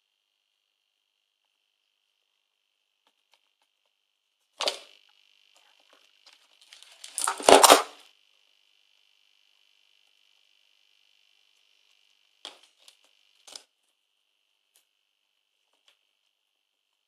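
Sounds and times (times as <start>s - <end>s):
high-voltage coil whining: 0.0s - 17.0s
sparks crackling: 4.6s - 8.0s, 11.2s - 13.7s.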